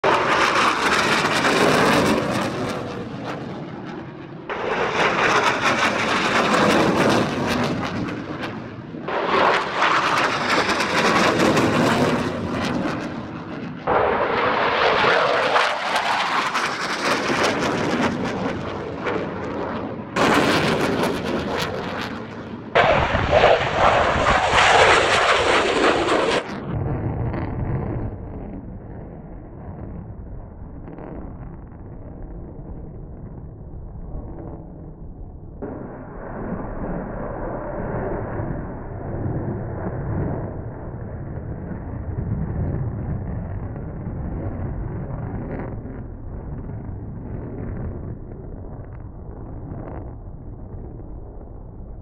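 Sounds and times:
jet engines flying overhead: 0.0s - 52.0s.

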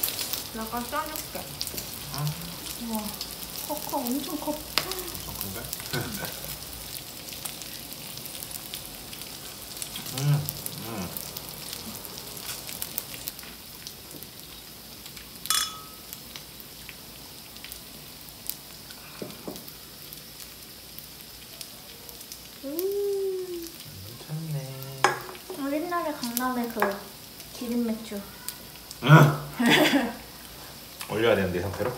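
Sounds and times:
fish sizzling on grill plate: 0.0s - 31.9s
short ringing clink: 15.5s - 16.0s.

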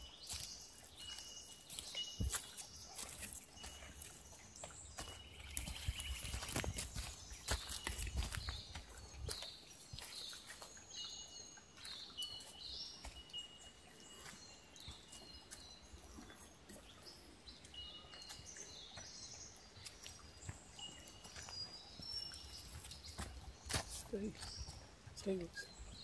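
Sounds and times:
birds chirping and whistling: 0.0s - 24.9s
soft footstep clicks: 1.8s - 10.7s.

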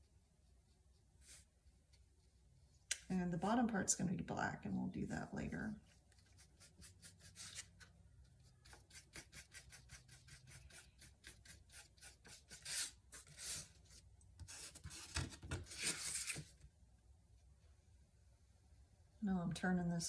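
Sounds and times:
paintbrush scratching on canvas: 5.8s - 7.8s, 8.5s - 13.7s.

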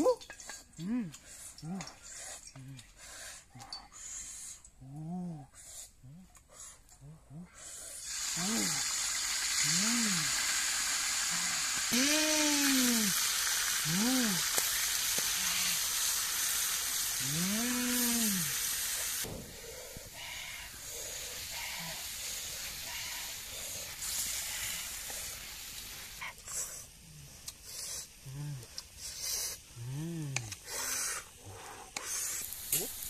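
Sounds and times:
octopus sizzling in hot oil: 8.0s - 19.3s, 20.7s - 26.2s, 32.0s - 33.0s
voice-like calls: 17.2s - 18.6s.

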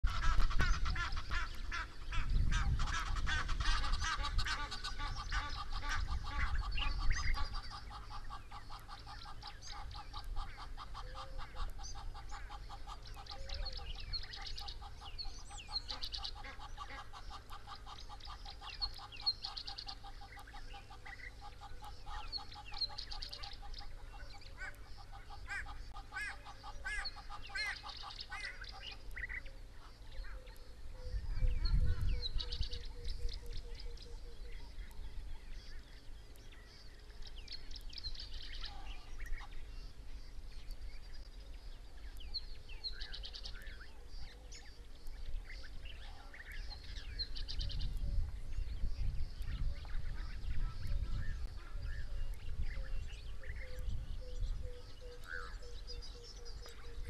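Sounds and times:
birds honking: 0.0s - 30.5s
small birds chirping: 0.0s - 57.0s.

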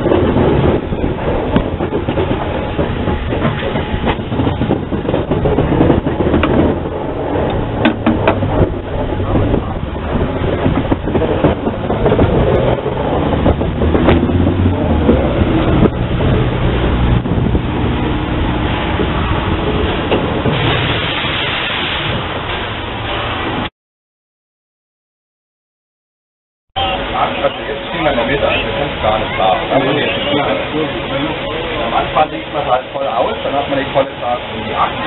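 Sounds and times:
wheels clicking over rail joints: 0.0s - 16.0s
steam locomotive running: 0.0s - 17.2s.

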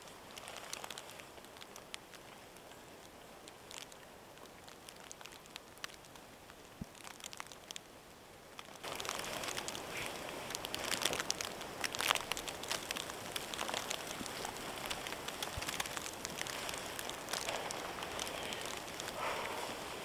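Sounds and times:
sleet pattering on tarp: 0.0s - 2.4s, 8.6s - 20.0s.

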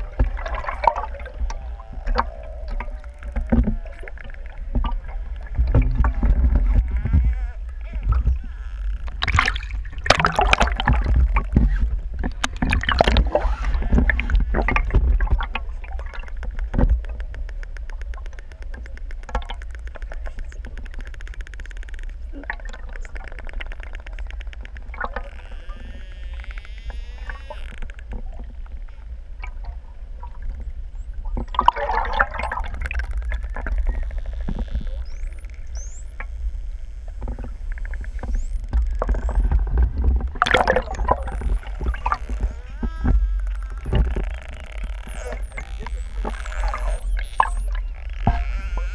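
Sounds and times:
dolphin clicks: 0.0s - 11.7s, 12.3s - 28.4s, 31.5s - 48.9s
underwater water rumble: 0.0s - 48.9s
dolphin buzzing pulse train: 23.9s - 28.0s, 40.7s - 48.9s.

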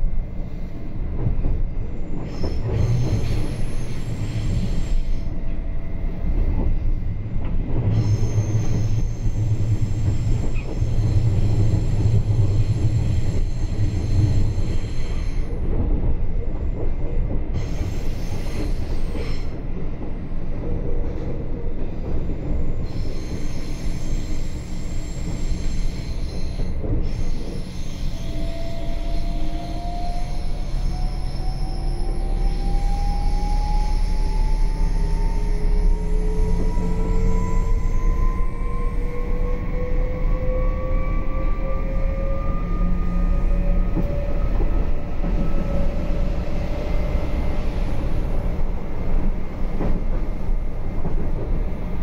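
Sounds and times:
train wheels rumbling on rails: 0.0s - 52.0s
high-pitched wheel squealing: 22.9s - 48.5s.

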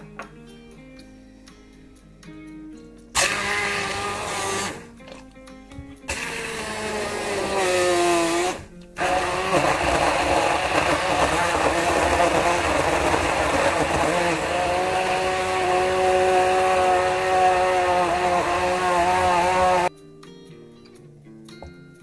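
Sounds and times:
stick blender whirring: 3.2s - 5.2s, 6.1s - 19.9s.

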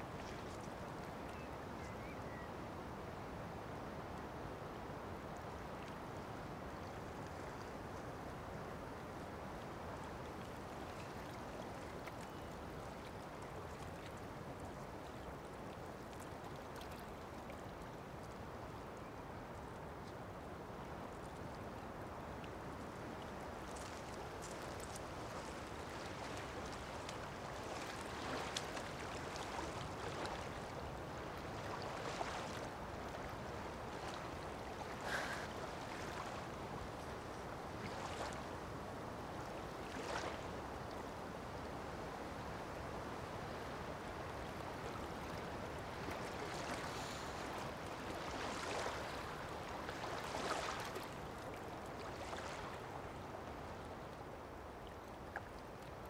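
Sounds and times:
small waves lapping on pebbles: 22.8s - 38.4s, 44.8s - 53.8s
outdoor ambience hiss: 34.2s - 37.1s.

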